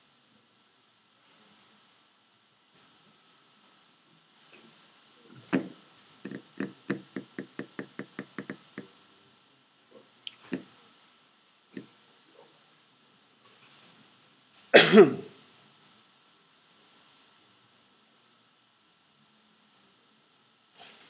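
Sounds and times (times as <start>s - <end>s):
sharp taps or knocks: 5.5s - 8.9s.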